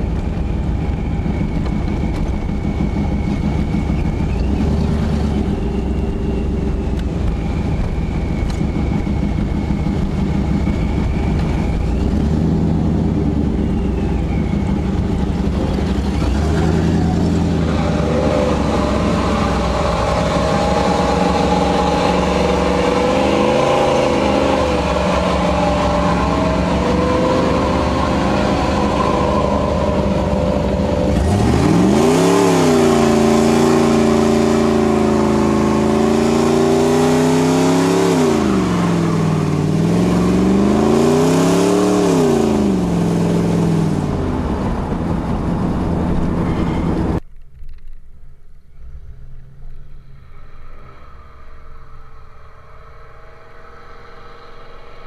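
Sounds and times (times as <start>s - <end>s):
engine running low: 0.0s - 55.0s
engine revving at high revs: 8.4s - 45.0s.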